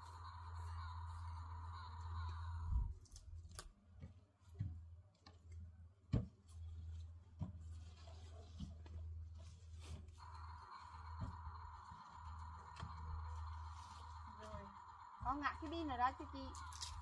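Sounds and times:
leafy greens snapping: 3.0 - 3.8.

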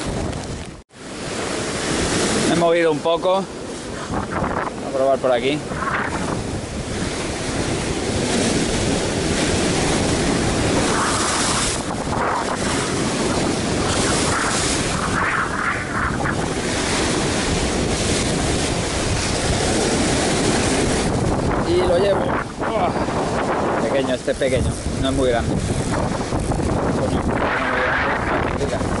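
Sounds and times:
sea surf breaking over rocks: 0.0 - 29.0
wind buffeting microphone: 0.0 - 29.0.

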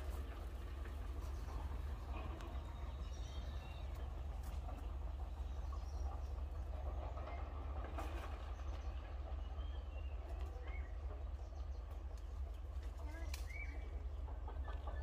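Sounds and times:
steady low rumble: 0.0 - 15.0.

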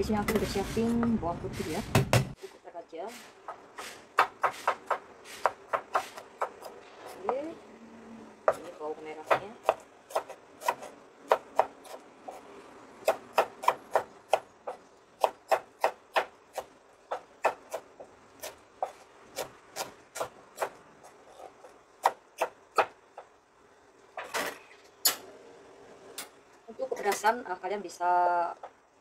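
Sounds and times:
knife scrape on board: 3.2 - 6.2
cleaver chopping on wooden board: 3.8 - 6.7.

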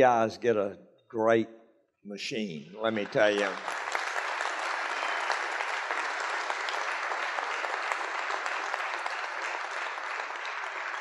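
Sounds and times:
crowd applauding: 2.8 - 11.0.

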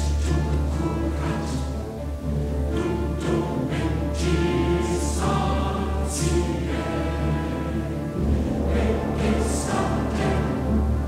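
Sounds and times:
choir singing held chords: 0.0 - 11.0
orchestra: 0.0 - 11.0.

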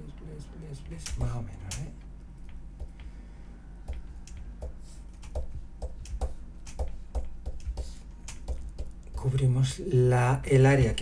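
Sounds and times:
steady low hum: 0.0 - 11.0
computer mouse clicking: 3.9 - 4.5, 5.1 - 9.2.

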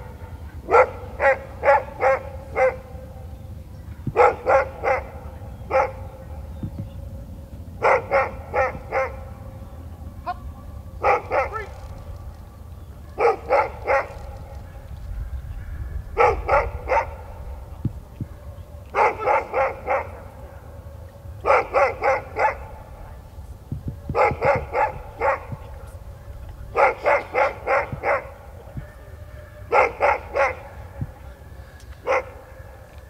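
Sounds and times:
dog barking: 0.6 - 3.2, 4.1 - 6.5, 7.8 - 9.4, 11.0 - 11.9, 13.1 - 14.9, 16.1 - 23.3, 24.0 - 31.2, 32.0 - 33.0.

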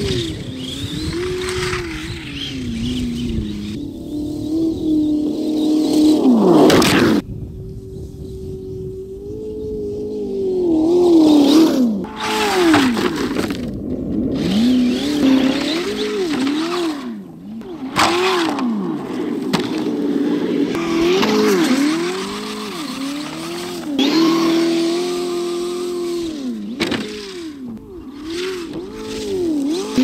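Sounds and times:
simulated engine from speaker: 0.0 - 13.5, 14.3 - 30.0
tyres spraying snow: 17.9 - 26.2.

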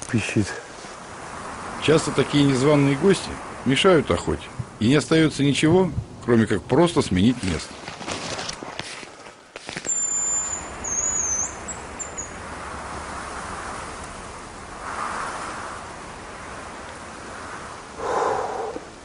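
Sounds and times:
soft rustling: 7.3 - 10.0.

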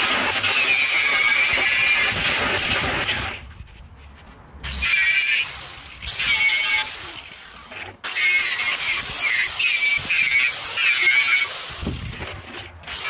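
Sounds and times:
angle grinder on steel: 0.0 - 3.5, 4.6 - 13.0.

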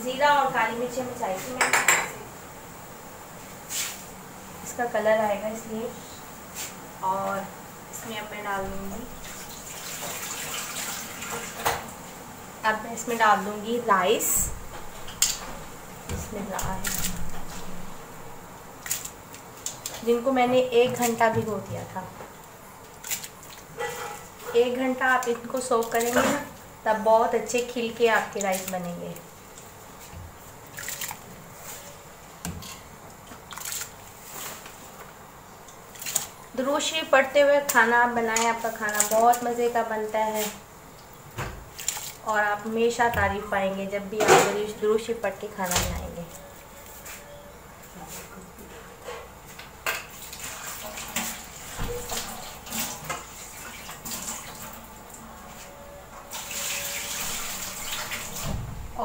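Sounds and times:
water boiling in a pot: 4.6 - 44.2, 49.6 - 59.0
water splashing in a pot: 9.1 - 11.9, 16.1 - 17.7, 23.0 - 26.6, 30.4 - 31.8, 32.6 - 34.6, 40.3 - 43.4, 49.9 - 54.9, 56.3 - 58.6.

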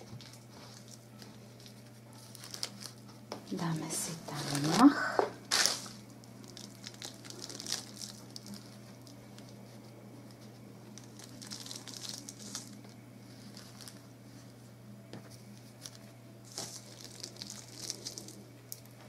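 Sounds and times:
faint steady low hum: 0.0 - 19.0
hands rustling moss: 15.7 - 18.4.

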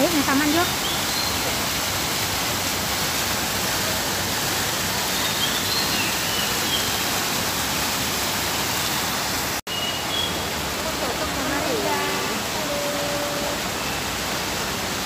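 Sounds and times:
fountain water splashing: 0.0 - 15.0.

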